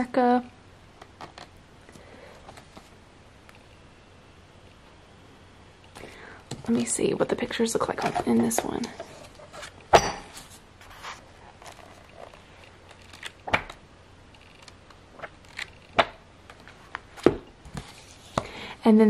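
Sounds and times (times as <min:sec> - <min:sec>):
book pages turning: 0:14.4 - 0:18.4.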